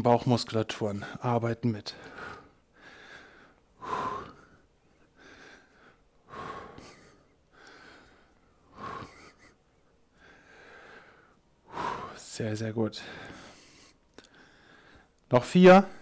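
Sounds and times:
man breathing heavily: 1.8s - 12.3s, 12.9s - 15.2s.

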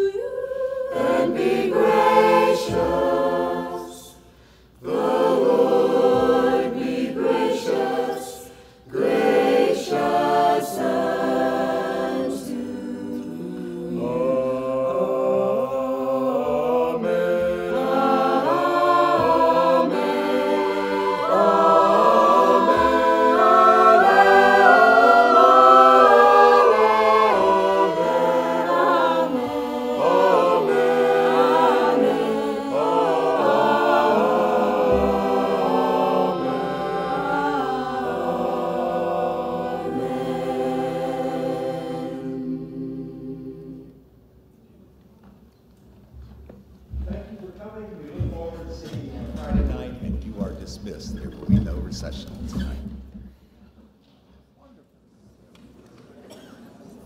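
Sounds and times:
mixed choir singing: 0.0s - 44.2s, 55.7s - 57.0s.

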